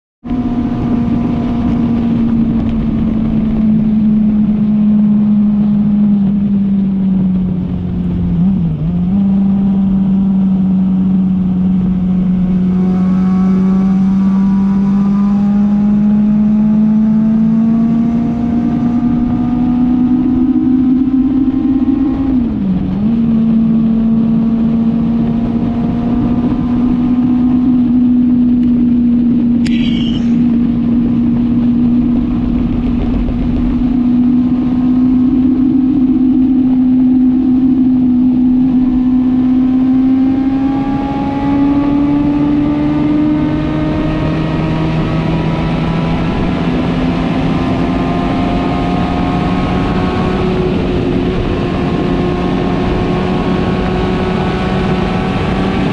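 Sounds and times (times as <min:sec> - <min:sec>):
wind rush: 0:00.2 - 0:09.3, 0:24.5 - 0:55.9
motorcycle engine at high revs: 0:00.3 - 0:55.9.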